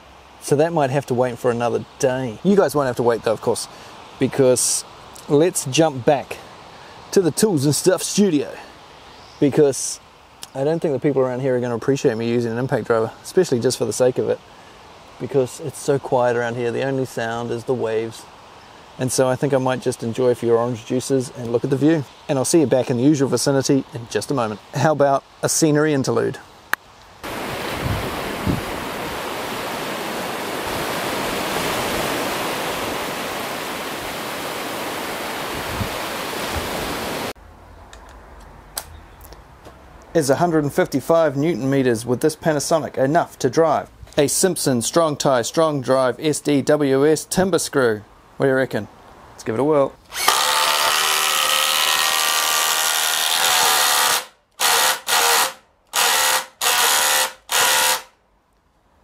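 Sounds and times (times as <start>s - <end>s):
surf washing onto beach: 27.2s - 37.4s
impact driver hammering screw: 50.2s - 52.4s, 53.0s - 58.1s.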